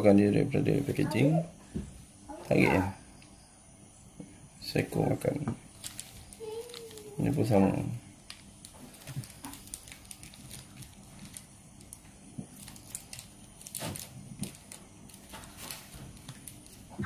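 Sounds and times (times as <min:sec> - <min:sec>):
plastic wrapper crinkling: 0:05.7 - 0:07.5, 0:08.2 - 0:17.0.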